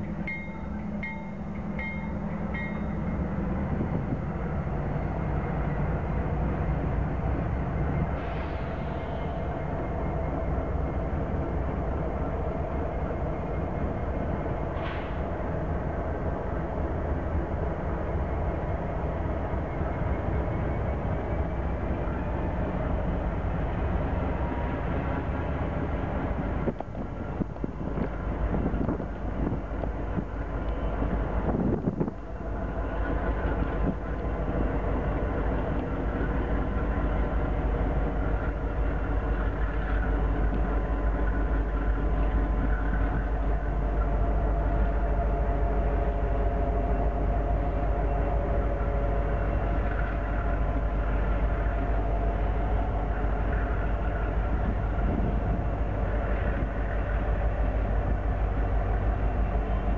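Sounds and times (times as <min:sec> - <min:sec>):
diesel locomotives rumbling: 0:00.0 - 0:59.9.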